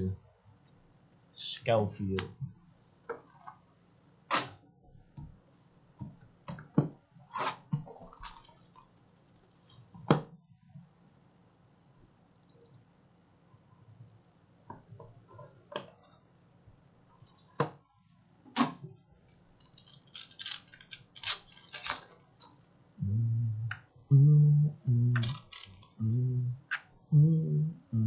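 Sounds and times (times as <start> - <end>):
plastic wrap crinkling: 19.6 - 22.7, 25.2 - 26.0
short low-pitched tones: 23.0 - 25.4, 26.0 - 28.0.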